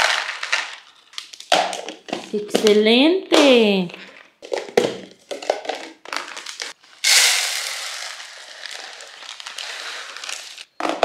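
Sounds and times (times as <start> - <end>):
plastic bag crinkling: 0.0 - 2.4, 5.3 - 10.7
lentils pouring into container: 6.8 - 10.7.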